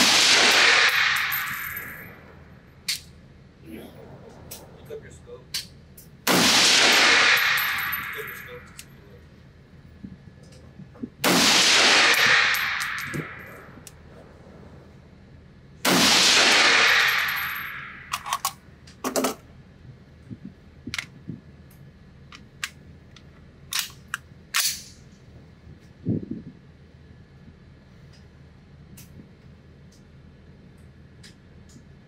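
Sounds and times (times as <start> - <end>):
rifle shots echoing: 0.0 - 2.0, 6.2 - 8.5, 11.2 - 13.8, 15.8 - 18.2
sharp clicks and cracks: 20.9 - 24.9.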